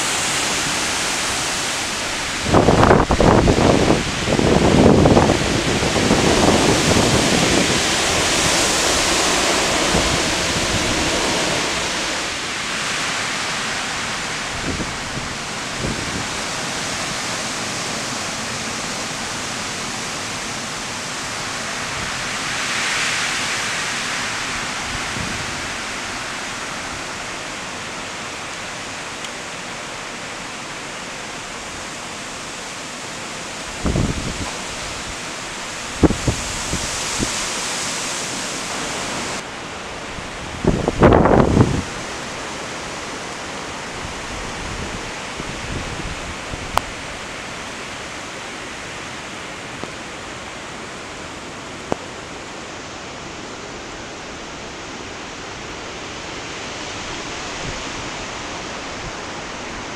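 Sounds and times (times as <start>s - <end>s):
wind buffeting microphone: 0.0s - 17.4s, 33.6s - 37.7s, 40.2s - 42.2s, 43.9s - 47.3s
gusting wind: 0.0s - 59.9s
heavy rain: 0.0s - 59.9s.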